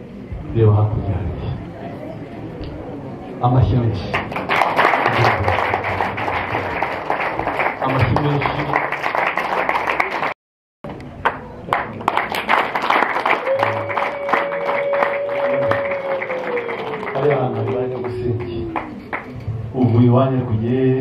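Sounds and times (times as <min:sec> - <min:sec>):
crowd clapping: 0:04.0 - 0:19.4.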